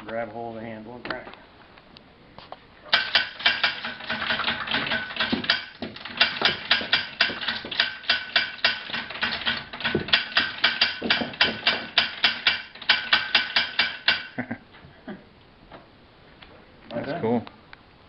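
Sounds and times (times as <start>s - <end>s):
gatling gun action clacking: 2.9s - 14.4s.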